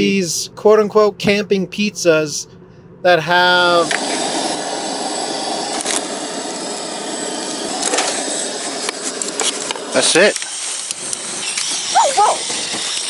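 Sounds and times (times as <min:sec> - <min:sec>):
gas burner hissing: 0:03.4 - 0:13.0.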